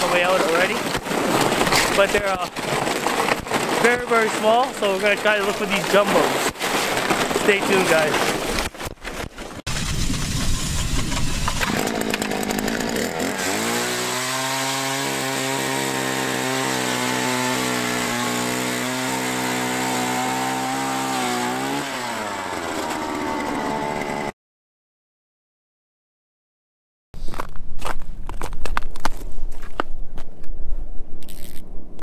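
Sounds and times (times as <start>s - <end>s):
ice auger engine revving: 0.0s - 8.8s, 9.6s - 24.4s
rough noisy rush: 0.0s - 24.3s.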